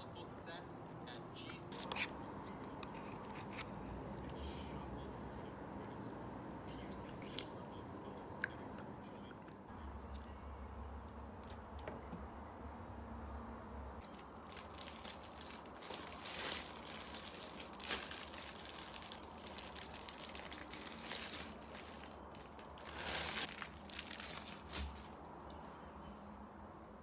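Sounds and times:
plastic wrapper crinkling: 0:14.0 - 0:25.2.

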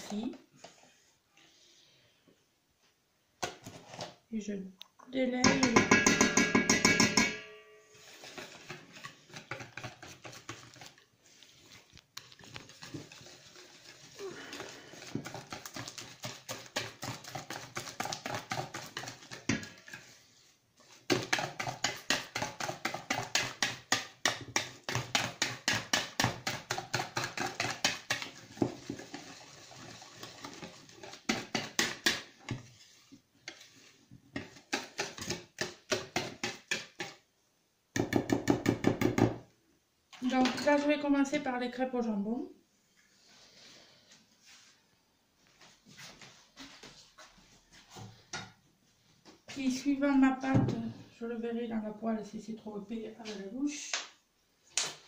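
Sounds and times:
whisk beating batter in bowl: 0:08.2 - 0:11.0, 0:12.2 - 0:20.2, 0:20.8 - 0:37.2.

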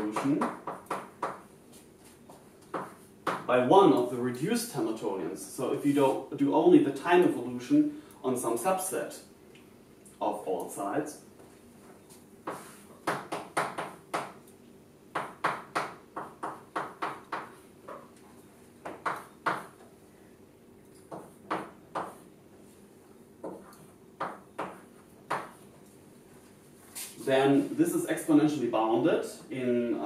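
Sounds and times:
chalk tapping on blackboard: 0:00.1 - 0:03.5, 0:12.4 - 0:14.4, 0:15.2 - 0:18.1, 0:18.8 - 0:19.8, 0:21.1 - 0:22.3, 0:23.4 - 0:25.6.

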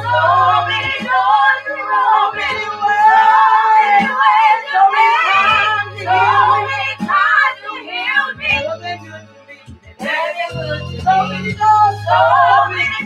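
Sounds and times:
low held bass notes: 0:00.0 - 0:01.0, 0:05.4 - 0:07.0, 0:10.6 - 0:13.0
women singing gospel: 0:00.0 - 0:13.0.

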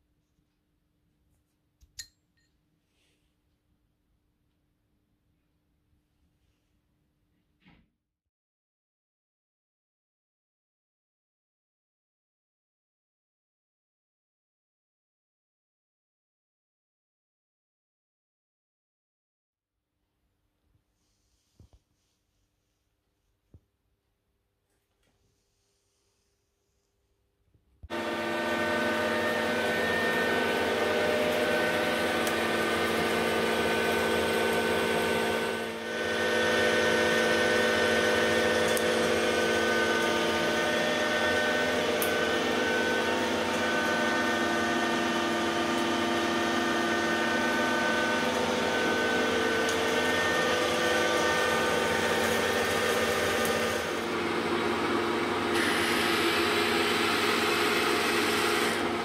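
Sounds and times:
lathe drilling metal: 0:27.9 - 0:59.0
lathe gears whining: 0:27.9 - 0:59.0.

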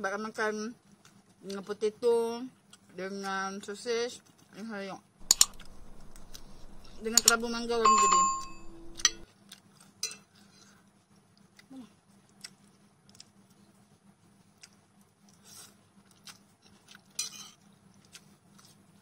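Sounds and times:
metal chopsticks clicking on plate: 0:05.2 - 0:09.2.

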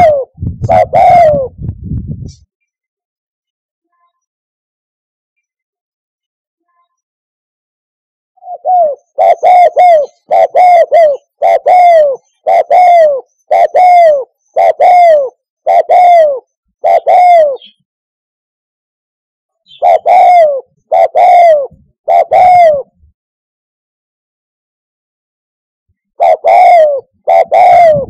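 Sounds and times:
dove cooing: 0:00.0 - 0:01.6, 0:08.4 - 0:17.8, 0:19.7 - 0:23.0, 0:26.2 - 0:28.0.

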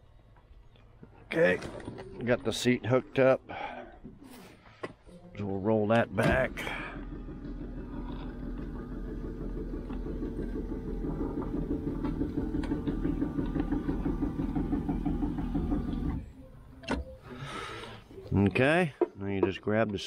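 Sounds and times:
electric seat motor running: 0:06.7 - 0:16.4.

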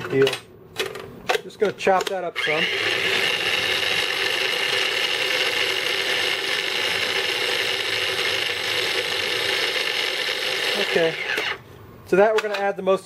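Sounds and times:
food chopper motor running: 0:02.4 - 0:11.6.

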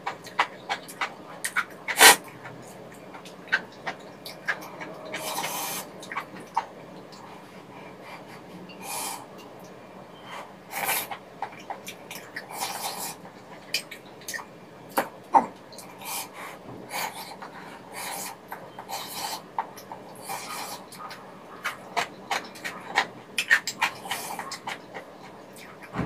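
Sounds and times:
chewing: 0:00.0 - 0:25.9
slurping noodles and broth: 0:01.4 - 0:02.6, 0:04.3 - 0:06.3, 0:10.2 - 0:11.2, 0:12.3 - 0:13.6, 0:15.8 - 0:21.8.

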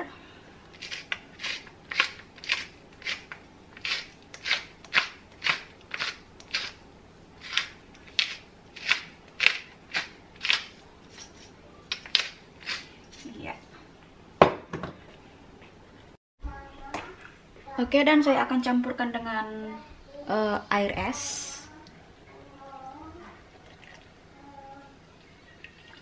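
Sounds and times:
pepper grinder grinding: 0:00.7 - 0:06.8, 0:07.4 - 0:13.4.

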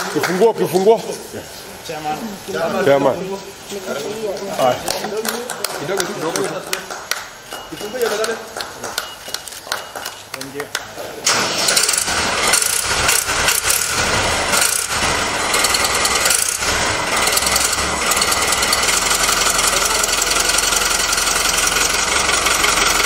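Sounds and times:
tractor engine starting and idling: 0:11.2 - 0:23.0.

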